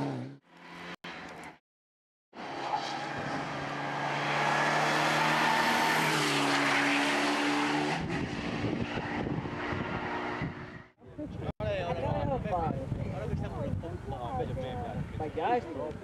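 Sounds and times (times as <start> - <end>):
rally car engine at high revs: 2.4 - 10.9.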